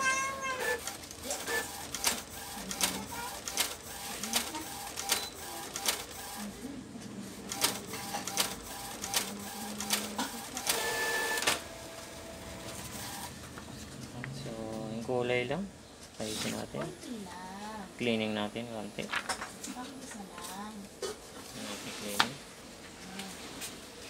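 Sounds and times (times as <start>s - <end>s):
printer carriage running: 0.4s - 13.8s
printer paper feed clicks: 0.6s - 6.4s, 7.5s - 13.6s.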